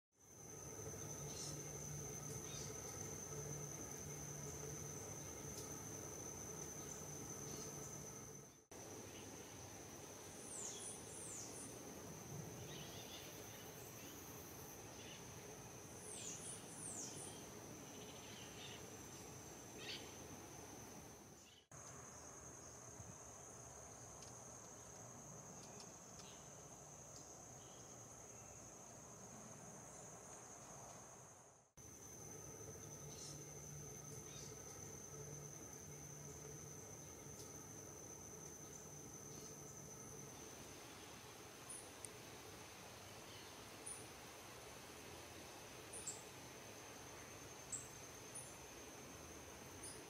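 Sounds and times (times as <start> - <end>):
high insect trill: 0.2 - 50.0
thin downward-sweeping bird calls: 19.8 - 20.2.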